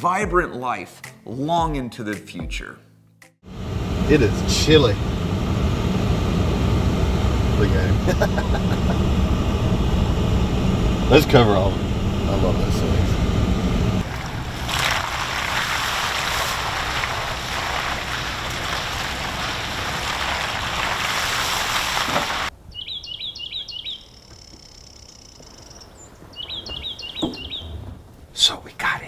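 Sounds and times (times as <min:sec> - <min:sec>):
vehicle engine humming: 0:03.5 - 0:22.7, 0:23.6 - 0:28.7
wind and travel noise: 0:03.5 - 0:29.0
songbird singing high notes: 0:22.7 - 0:27.8.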